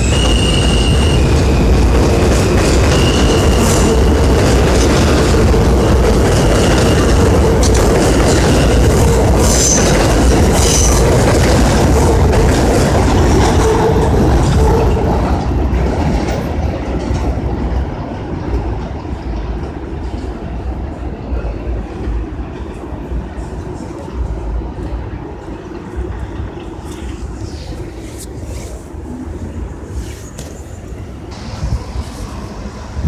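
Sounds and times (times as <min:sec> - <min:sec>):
high wheel squeal: 0:00.0 - 0:01.7, 0:02.8 - 0:03.9
train wheels rumbling on rails: 0:00.0 - 0:33.0.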